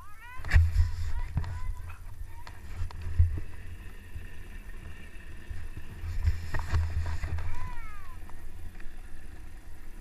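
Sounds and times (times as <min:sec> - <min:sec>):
sled runners rumbling on snow: 0:00.2 - 0:10.0
wind on microphone: 0:00.3 - 0:03.6.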